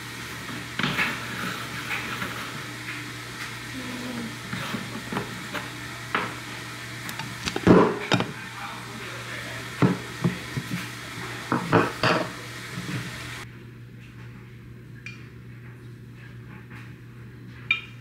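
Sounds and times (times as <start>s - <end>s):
ceramic canister handled: 7.1s - 8.3s
moka pot knocking on stove: 9.8s - 10.8s.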